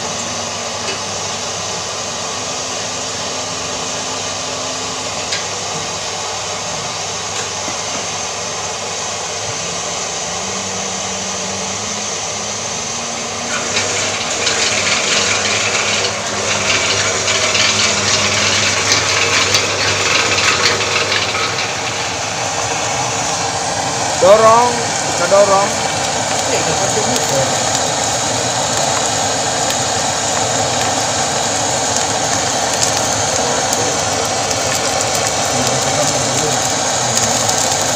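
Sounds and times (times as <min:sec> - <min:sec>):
electric motor humming: 0:00.0 - 0:37.9.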